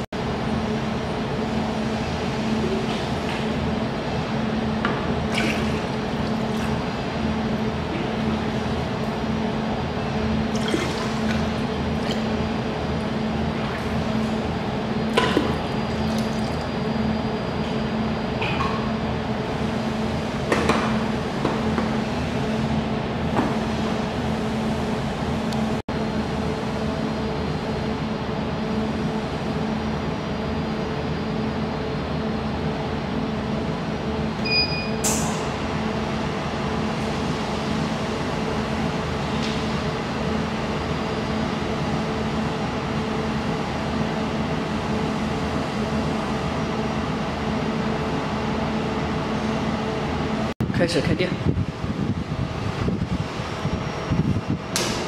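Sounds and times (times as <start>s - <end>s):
steady machine hum: 0.0s - 55.0s
water pouring and splashing: 5.3s - 6.8s, 10.5s - 12.3s.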